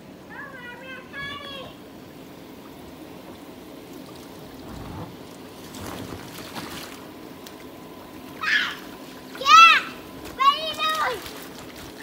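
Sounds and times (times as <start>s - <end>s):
soft splashes: 2.6s - 12.0s
water spraying: 2.6s - 12.0s.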